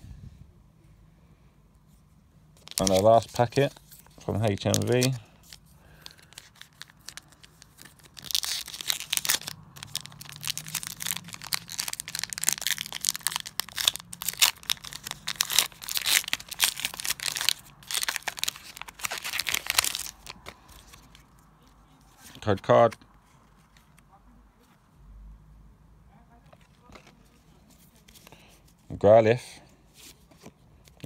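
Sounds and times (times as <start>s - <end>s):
foil wrapper crinkling and tearing: 2.6s - 21.4s.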